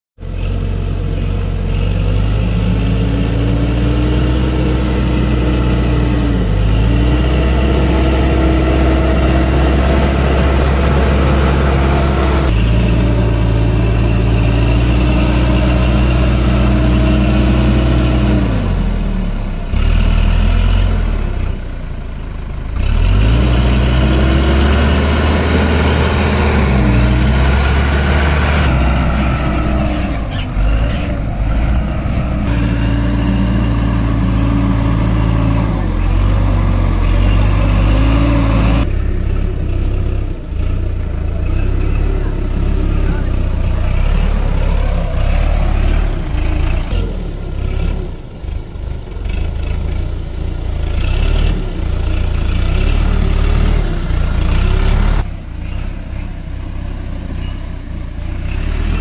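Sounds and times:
tractor diesel engine working hard: 0.2 - 59.0.

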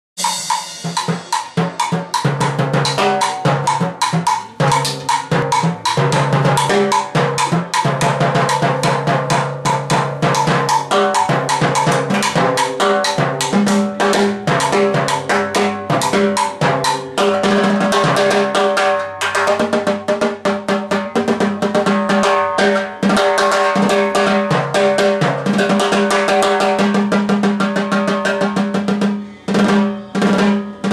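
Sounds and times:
cowbell hits: 0.2 - 20.0
timbales played with sticks: 0.2 - 30.9.

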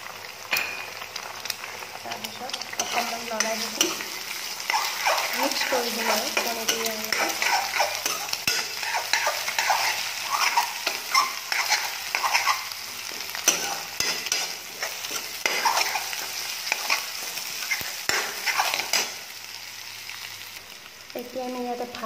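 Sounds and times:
food frying and sizzling: 0.0 - 22.0
metal spoon scraping a pan: 2.5 - 19.2.

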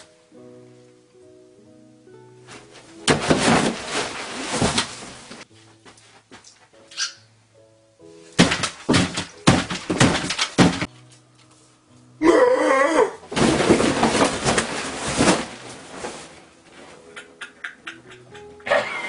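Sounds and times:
loud thumps: 3.0 - 5.4, 8.4 - 10.9
table of dishes crashing over: 3.1 - 5.2, 8.4 - 10.9, 13.3 - 15.7.

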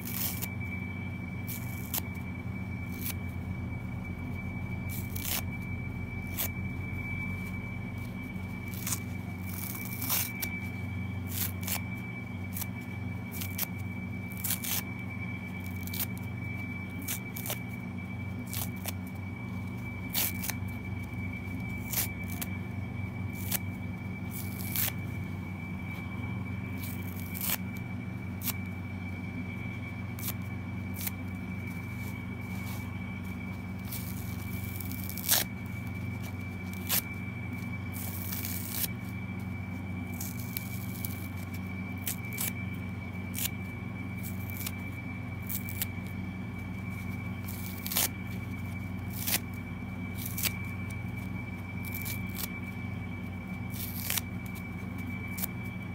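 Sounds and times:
steady low hum: 0.0 - 55.9
thin high tone: 0.0 - 55.9
sponges tearing: 24.3 - 25.0, 26.8 - 27.6, 33.9 - 35.5, 38.0 - 38.9, 47.4 - 48.1, 49.1 - 49.5, 50.2 - 50.6, 51.8 - 52.5, 53.7 - 54.6.

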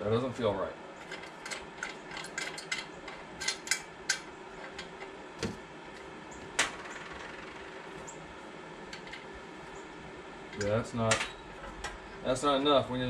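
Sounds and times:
steady low hum: 0.0 - 13.0
metal parts clicking and tapping: 1.0 - 5.6, 8.9 - 9.3, 10.5 - 12.0.

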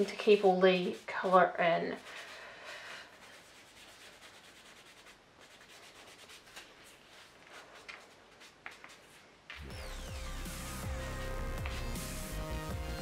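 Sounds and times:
cloth rubbing on leather: 3.1 - 9.4
music: 9.6 - 13.0.

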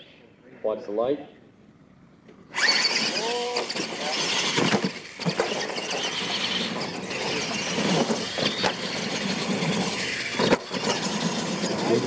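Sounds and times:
toy truck motors whining: 2.5 - 12.0
tyres churning dirt: 2.5 - 12.0.

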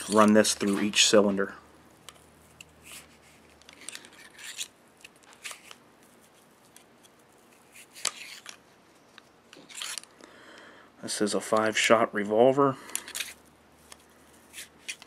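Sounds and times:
cleaning rod scraping: 0.0 - 1.4.

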